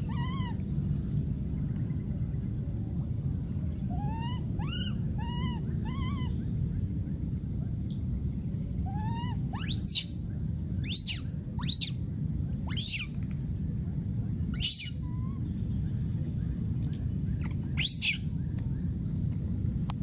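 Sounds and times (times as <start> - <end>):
baby monkey screaming: 0.0 - 0.6, 3.9 - 6.4, 8.8 - 10.2, 10.8 - 12.0, 12.6 - 13.2, 14.5 - 15.4, 17.4 - 18.3
steady low rumble: 0.0 - 20.0.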